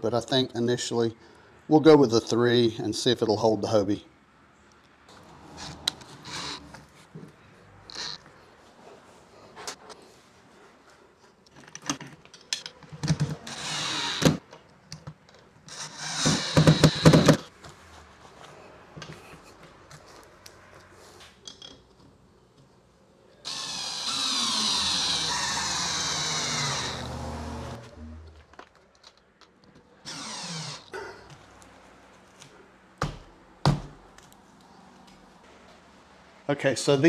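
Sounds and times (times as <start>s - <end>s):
cordless drill driving screw: 5.6s - 6.7s, 13.5s - 14.4s, 15.7s - 17.4s, 23.4s - 27.8s, 30.0s - 30.9s.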